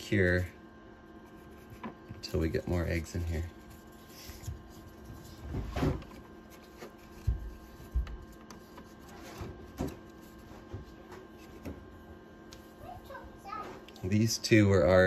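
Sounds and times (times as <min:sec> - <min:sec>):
faint steady hum: 0:00.0 - 0:15.0
paper and cardboard rustling: 0:01.2 - 0:11.9.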